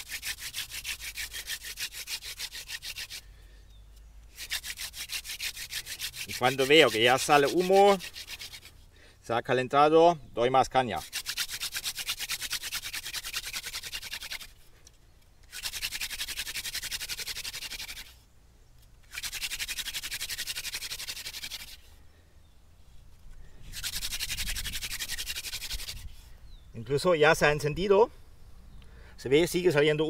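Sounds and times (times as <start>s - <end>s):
wooden hand drill rubbing squeak: 0.0s - 3.2s, 3.8s - 8.9s, 10.9s - 18.2s, 23.1s - 26.6s.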